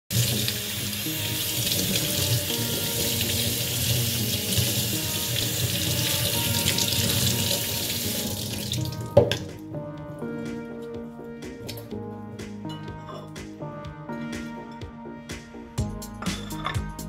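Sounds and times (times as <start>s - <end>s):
faucet water splashing into sink: 0.1s - 9.6s
faint background music: 0.1s - 17.0s.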